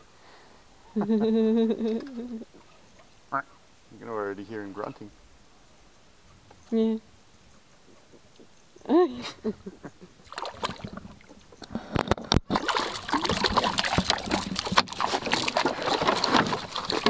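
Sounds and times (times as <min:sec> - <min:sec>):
water splashing beside boat: 0:10.2 - 0:17.0.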